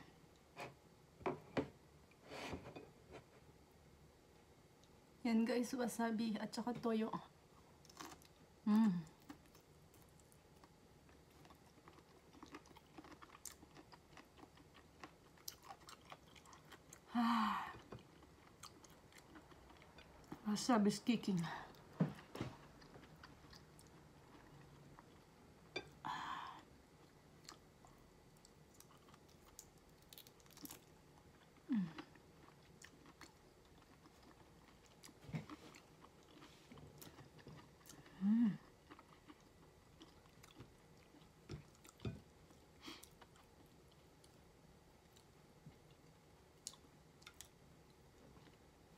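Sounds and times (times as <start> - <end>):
chewing shrimp: 9.2 - 17.1, 17.8 - 20.4, 27.0 - 47.6.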